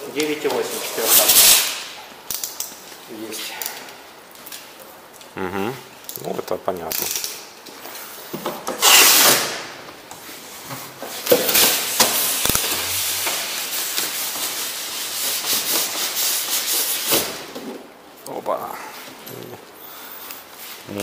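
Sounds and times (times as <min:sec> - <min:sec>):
loud hissing burst: 0:11.6 - 0:14.0.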